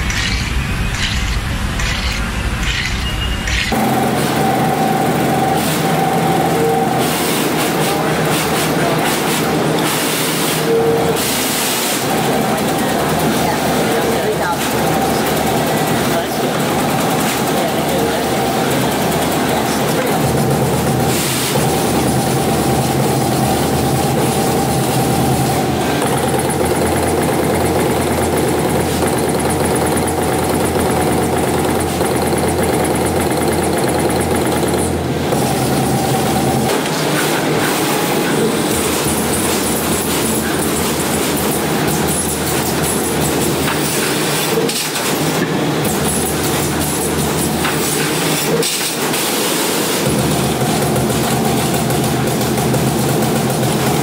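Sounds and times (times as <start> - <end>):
punching machine clatter: 0.0 - 6.0, 7.0 - 54.0
machine hum: 0.0 - 11.5, 14.7 - 44.4.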